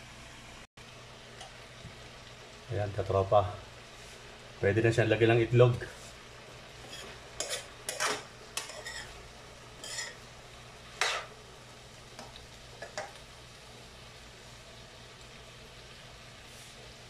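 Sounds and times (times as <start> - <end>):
spatula scraping a frying pan: 6.8 - 10.2, 10.9 - 11.4.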